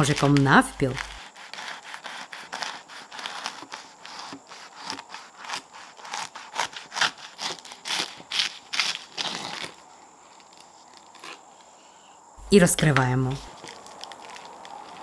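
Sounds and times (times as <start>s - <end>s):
knife sawing through crisp crust: 0.0s - 9.8s, 13.4s - 15.0s.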